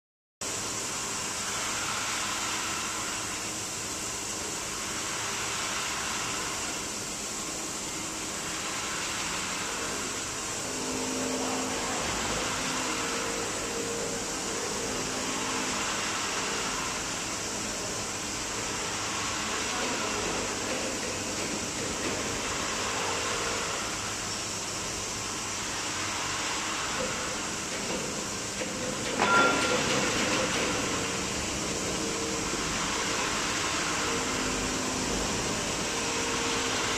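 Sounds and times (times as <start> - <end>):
factory floor hum: 0.4 - 36.9
metallic clank with ringing: 28.8 - 31.2.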